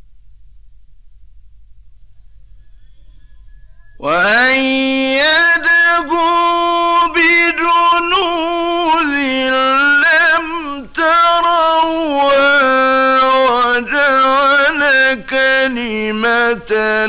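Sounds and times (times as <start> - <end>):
man chanting recitation: 4.0 - 17.0.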